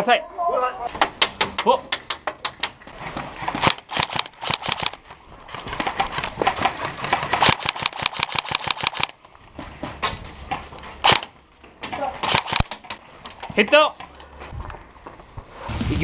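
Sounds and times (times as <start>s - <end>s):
airsoft guns firing: 3.4s - 5.0s, 5.7s - 9.2s, 11.0s - 13.0s.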